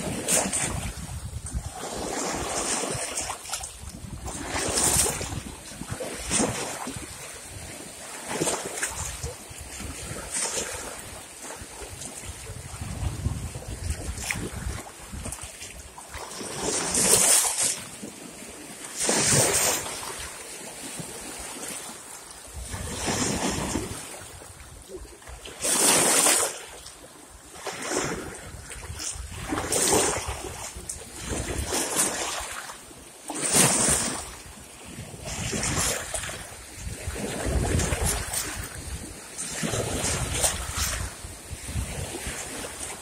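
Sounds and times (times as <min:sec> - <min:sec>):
wind rumble on microphone: 0:00.0 - 0:17.8, 0:22.5 - 0:26.0, 0:27.5 - 0:32.6, 0:33.5 - 0:43.0
small waves splashing against rocks: 0:00.0 - 0:43.0.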